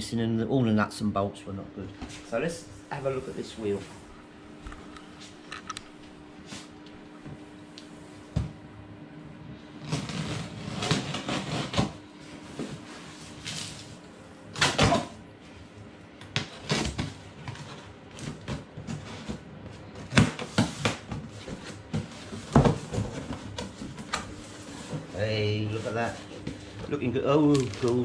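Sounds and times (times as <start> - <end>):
packing tape ripping: 9.8 - 11.9, 16.4 - 18.5, 27.4 - 28.0
cardboard tearing and rustling: 9.8 - 14.0, 16.4 - 28.0.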